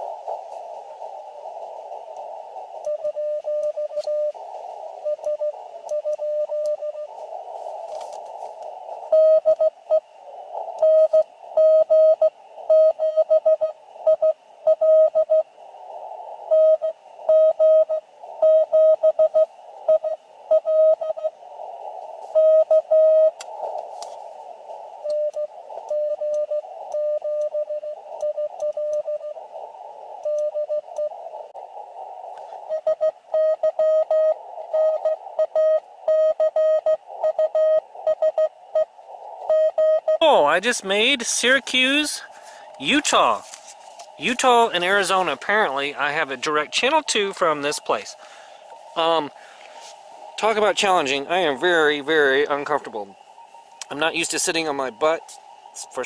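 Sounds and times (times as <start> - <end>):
radio hiss: 0.0 - 56.0
morse code beeps: 2.8 - 4.4, 5.0 - 7.2, 9.1 - 10.0, 10.8 - 15.4, 16.5 - 21.4, 22.3 - 23.4, 25.0 - 29.4, 30.2 - 31.1, 32.6 - 43.5.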